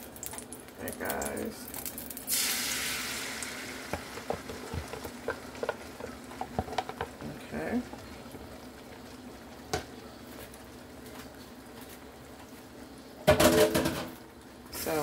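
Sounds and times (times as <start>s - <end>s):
eggs sizzling in hot oil: 0.0s - 15.0s
spatula tapping and scraping: 3.9s - 8.1s.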